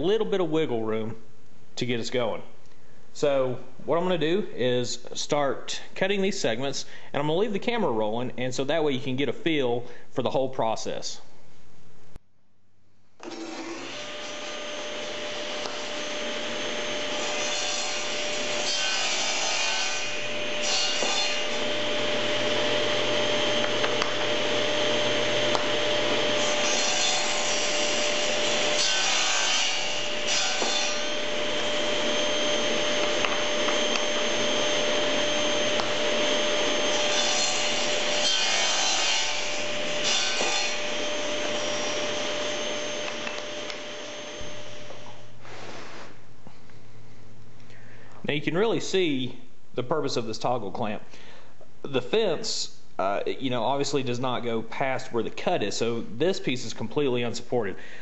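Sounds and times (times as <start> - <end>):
table saw running with whine: 13.2 - 19.2, 19.9 - 45.2
saw blade cutting wood: 13.2 - 22.7, 25.2 - 44.6.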